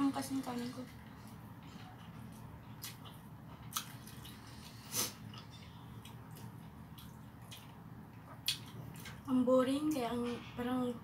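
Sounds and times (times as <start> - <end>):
steady low hum: 0.0 - 11.0
person chewing food: 1.2 - 9.3.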